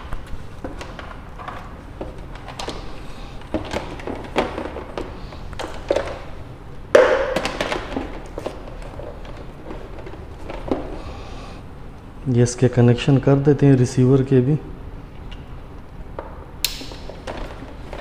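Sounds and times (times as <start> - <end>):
packaging rustling: 7.3 - 11.4.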